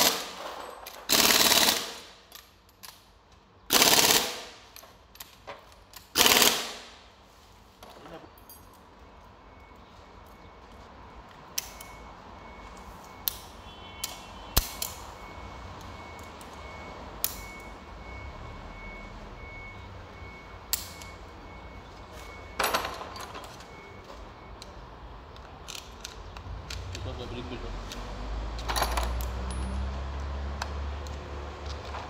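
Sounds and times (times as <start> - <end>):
metal tools clinking: 0.3 - 1.3, 8.2 - 8.9, 22.6 - 23.7, 28.6 - 29.9.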